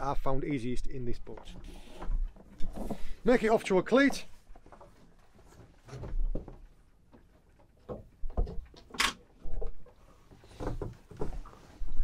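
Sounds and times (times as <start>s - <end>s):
rope knocking and rustling: 4.0s - 12.0s.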